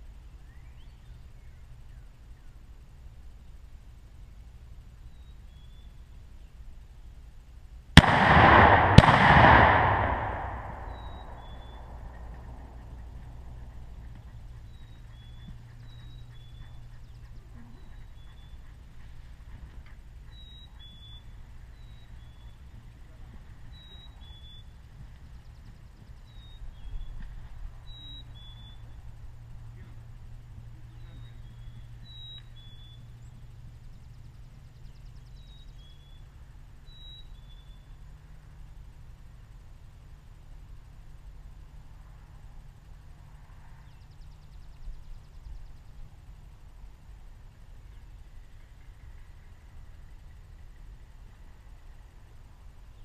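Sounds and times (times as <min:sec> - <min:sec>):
low steady rumble: 0:00.0 - 0:53.0
songbird whistling two-note call: 0:10.8 - 0:11.8.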